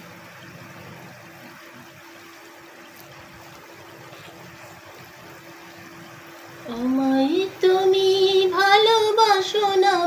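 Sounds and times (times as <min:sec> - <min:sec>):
food deep-frying in oil: 0:00.0 - 0:10.0.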